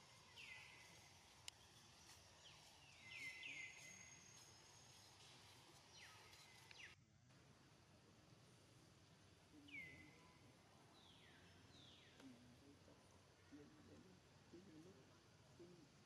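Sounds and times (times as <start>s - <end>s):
downward-sweeping bird chirps: 0.0s - 7.0s
faint outdoor ambience: 0.0s - 16.0s.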